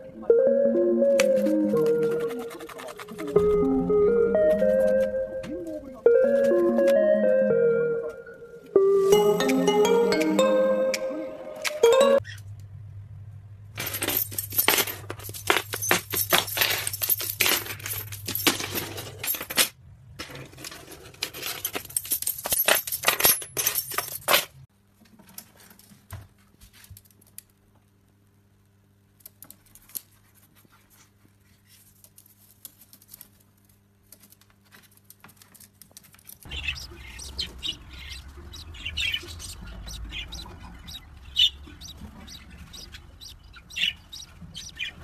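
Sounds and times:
metal keys jingling: 0:13.8 - 0:19.6, 0:21.5 - 0:24.5.

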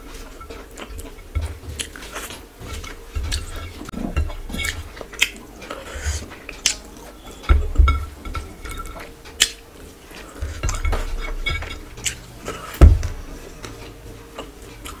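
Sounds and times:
plate clinking: 0:06.6 - 0:12.2
dull thump: 0:12.8 - 0:13.2.

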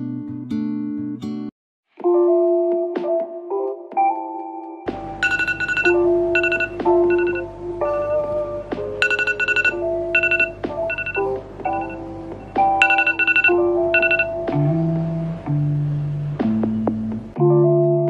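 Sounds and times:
low bass background music: 0:04.9 - 0:18.0
short high beeps: 0:05.2 - 0:08.2, 0:09.0 - 0:14.3
phone alarm electronic melody: 0:05.2 - 0:08.4, 0:09.0 - 0:14.4.

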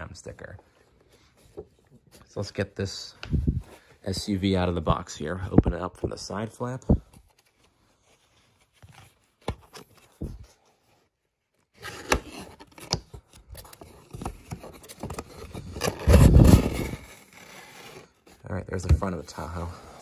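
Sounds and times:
cardboard scraping and rubbing: 0:11.6 - 0:20.0.

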